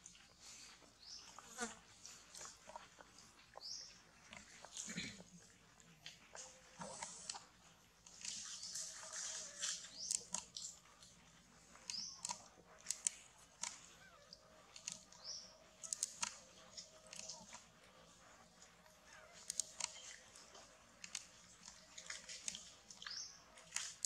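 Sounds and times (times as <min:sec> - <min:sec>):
small sharp clicks: 0:11.7 - 0:14.0, 0:14.7 - 0:17.6, 0:19.4 - 0:20.2.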